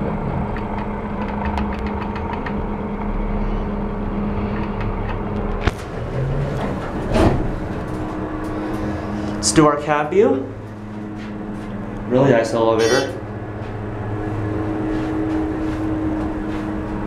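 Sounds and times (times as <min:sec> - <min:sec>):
elevator cab humming: 0:00.0 - 0:17.0
elevator doors sliding shut: 0:04.6 - 0:09.4.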